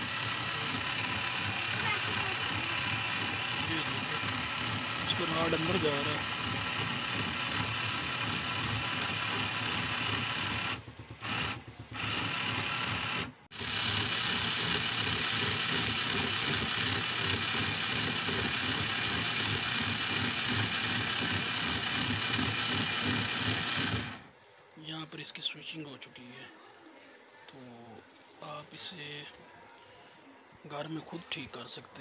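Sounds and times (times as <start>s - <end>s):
electric actuator motor running: 0.0s - 24.4s.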